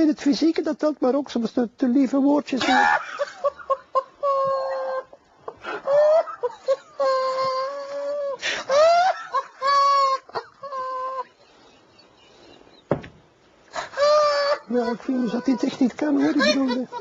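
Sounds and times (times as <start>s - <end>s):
man's stifled laughter: 2.6s - 11.4s, 13.8s - 17.0s.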